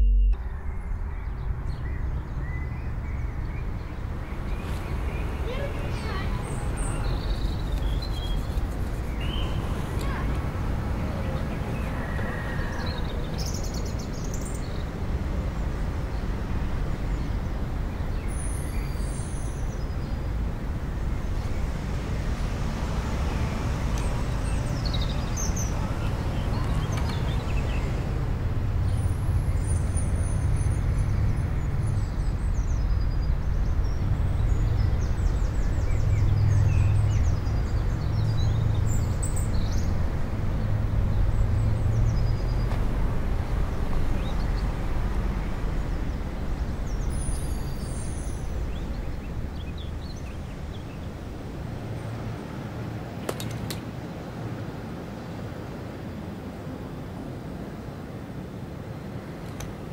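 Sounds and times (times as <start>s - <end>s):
faint high chirps: 0.0s - 1.0s
low rumble: 0.0s - 2.6s.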